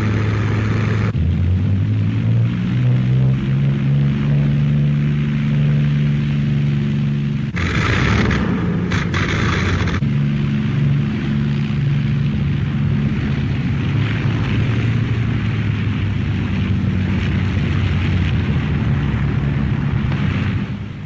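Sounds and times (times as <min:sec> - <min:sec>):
piston aircraft engines droning: 0:00.0 - 0:21.0
loud rushing hiss: 0:07.6 - 0:10.0.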